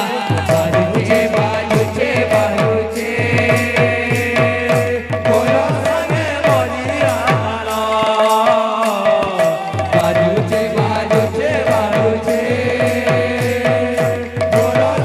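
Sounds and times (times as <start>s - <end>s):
drums in fast rhythm: 0.0s - 15.0s.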